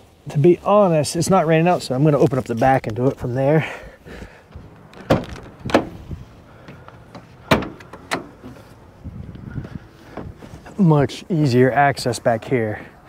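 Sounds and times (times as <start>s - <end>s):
van door metal clunks: 4.5s - 8.8s, 9.6s - 10.8s
handling noise: 4.5s - 10.8s.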